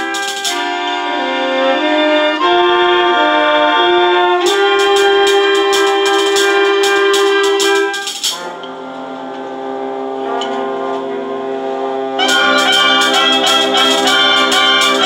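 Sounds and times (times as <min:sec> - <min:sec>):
drums: 0:00.0 - 0:00.8, 0:04.4 - 0:08.5, 0:12.2 - 0:15.0
concert band playing: 0:00.0 - 0:03.2, 0:03.9 - 0:15.0.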